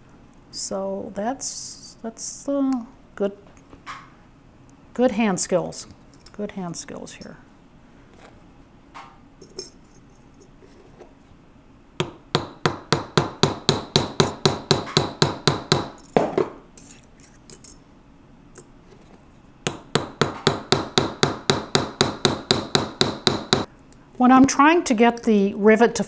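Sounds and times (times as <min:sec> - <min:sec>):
hammer tapping on metal punch: 0:12.0 - 0:16.5, 0:19.6 - 0:23.7.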